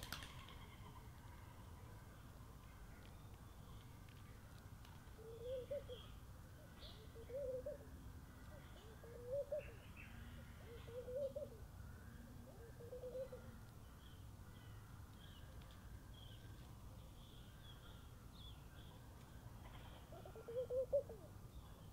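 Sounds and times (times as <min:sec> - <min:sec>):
dove cooing: 0:05.2 - 0:06.1, 0:06.7 - 0:09.8, 0:10.6 - 0:11.7, 0:12.3 - 0:13.6, 0:19.6 - 0:21.4.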